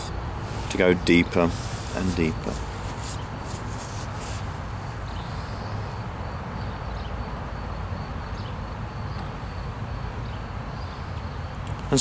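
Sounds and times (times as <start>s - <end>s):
faint high whine: 0.0s - 3.8s.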